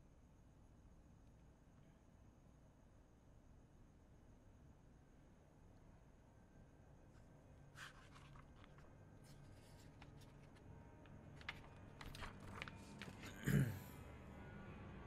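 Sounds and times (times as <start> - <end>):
magazine pages rustling: 7.7 - 13.4.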